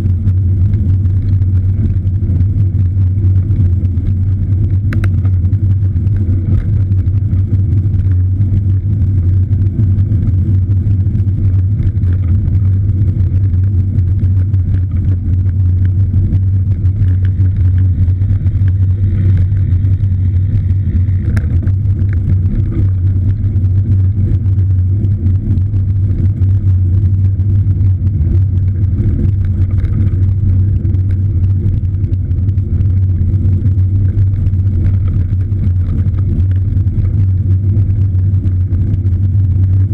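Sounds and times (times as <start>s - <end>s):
loud low rumble: 0.0s - 39.9s
faint ticks: 3.3s - 7.2s.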